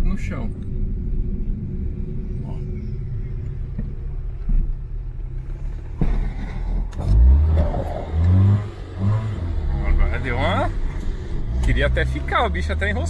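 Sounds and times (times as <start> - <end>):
car cabin rumble: 0.0 - 13.0
heavy low thump: 0.5 - 10.0.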